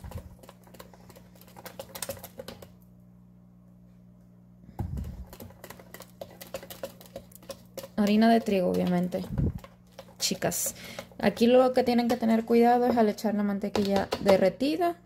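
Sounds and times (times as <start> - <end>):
whisk clicking against bowl: 0.0 - 2.8, 4.9 - 14.5.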